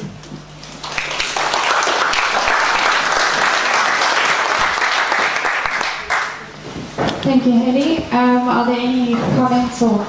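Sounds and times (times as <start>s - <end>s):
audience applauding: 0.7s - 6.5s.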